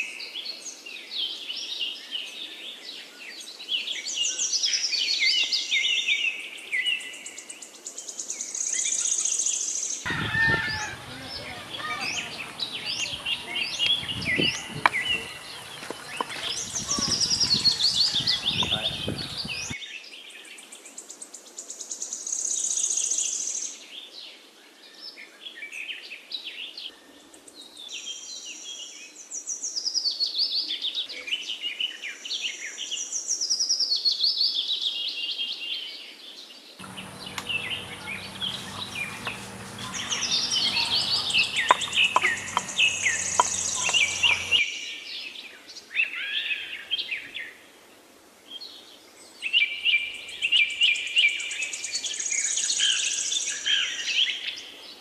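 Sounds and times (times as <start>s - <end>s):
small birds chirping and singing: 0.0s - 47.5s
low hum: 36.8s - 44.6s.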